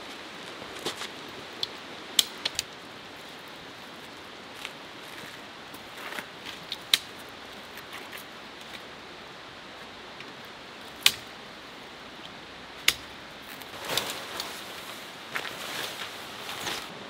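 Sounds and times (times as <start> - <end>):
steady hiss: 0.0 - 17.0
tent fabric rustling: 13.4 - 17.0.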